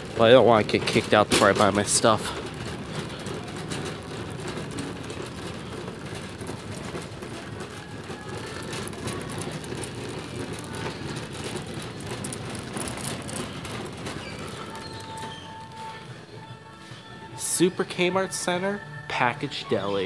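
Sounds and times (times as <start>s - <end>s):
cart wheels rumbling: 0.0s - 20.0s
small rattling clicks: 1.4s - 15.8s.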